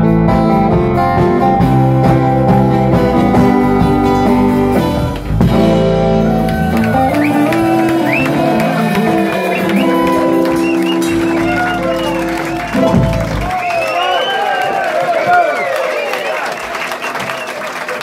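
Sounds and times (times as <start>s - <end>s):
held guitar chords ringing: 0.0s - 13.5s
live rock band playing: 0.0s - 13.8s.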